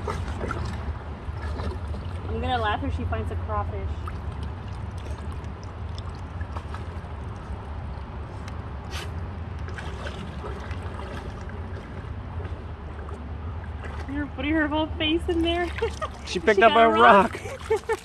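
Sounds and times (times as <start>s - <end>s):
water trickling over stones: 2.0s - 8.6s, 15.2s - 18.0s
dog splashing in water: 9.7s - 14.1s, 15.3s - 18.0s.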